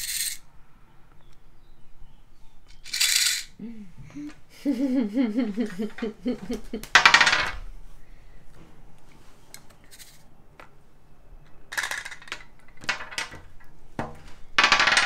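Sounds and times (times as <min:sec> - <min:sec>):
plastic cube rattling: 0:02.8 - 0:03.5
person's wavering voice: 0:03.6 - 0:06.9.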